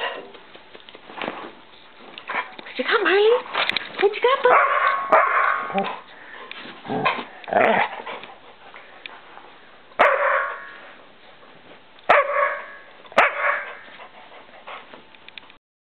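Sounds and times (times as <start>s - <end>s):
dog barking: 4.4s - 6.0s, 10.0s - 10.7s, 12.1s - 13.8s.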